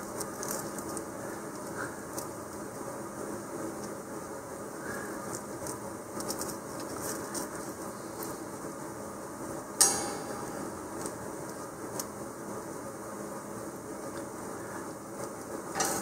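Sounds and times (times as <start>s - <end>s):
light ticks of skewers: 15.2s - 16.0s.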